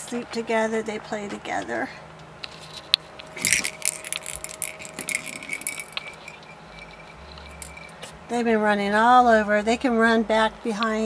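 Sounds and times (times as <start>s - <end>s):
jingle ball jingling: 3.4s - 8.2s.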